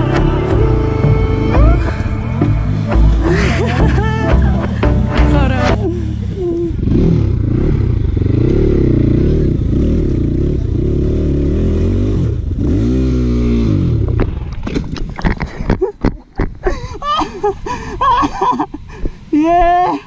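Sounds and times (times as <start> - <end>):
dirt bike engine revving: 0.0 - 14.6.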